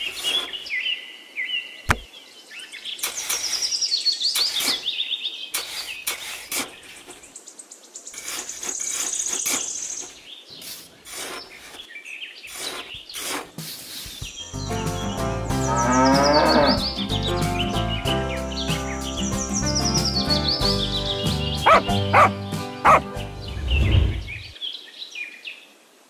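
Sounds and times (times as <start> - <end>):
trowel scraping damp sand: 0.0 - 0.7, 4.4 - 7.3, 8.1 - 14.4
birds chirping: 0.0 - 25.4.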